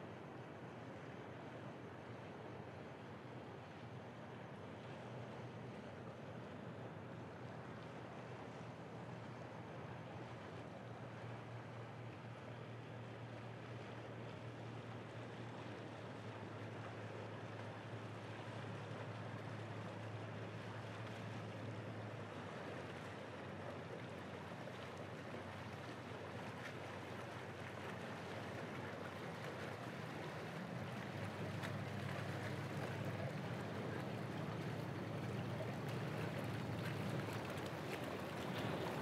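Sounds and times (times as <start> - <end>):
broad wash of noise: 0.0 - 39.0
ferry engine humming: 27.6 - 39.0.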